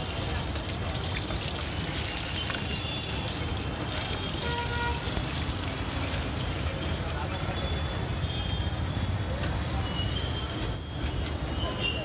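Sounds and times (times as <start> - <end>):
oil sizzling and bubbling: 0.0 - 7.4.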